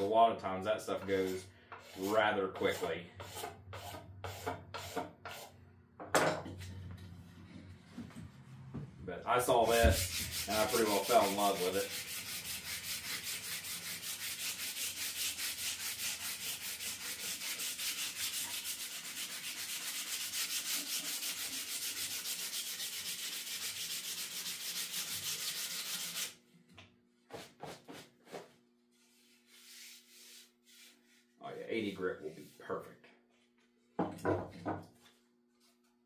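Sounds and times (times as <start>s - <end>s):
sandpaper sanding wood: 1.0s - 5.5s, 9.5s - 26.4s, 29.0s - 32.6s.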